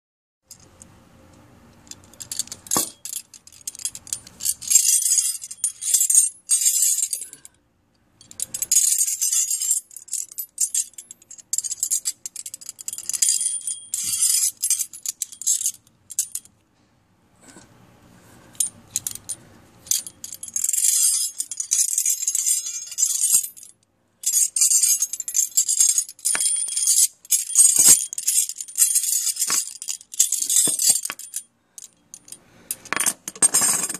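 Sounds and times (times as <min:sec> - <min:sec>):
metal puzzle rattling and clinking: 0:08.2 - 0:16.5, 0:18.9 - 0:33.9.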